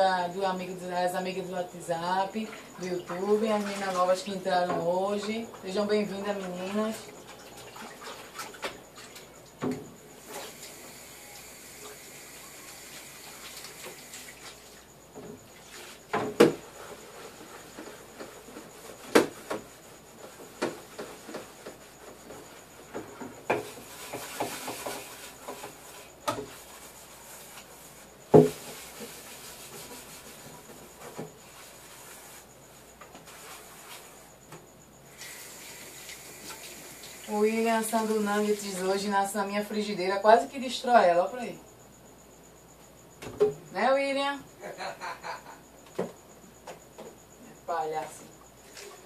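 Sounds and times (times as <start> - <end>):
sponge scrubbing: 23.8 - 32.5.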